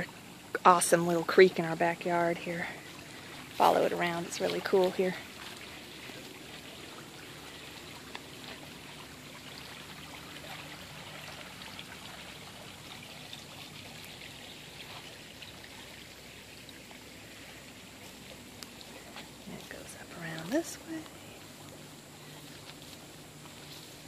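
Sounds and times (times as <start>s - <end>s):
creek trickling over rock: 0.0s - 24.0s.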